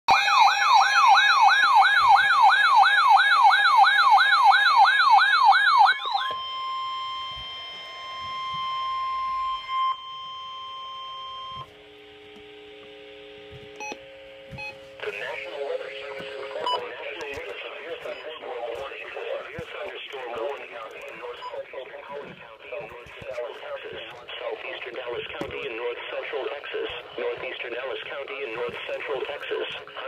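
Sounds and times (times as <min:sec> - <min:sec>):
warbling alarm siren: 0:00.1 - 0:13.2
steady single-pitch alert tone: 0:06.0 - 0:11.7
chord of low steady tones: 0:06.5 - 0:30.0.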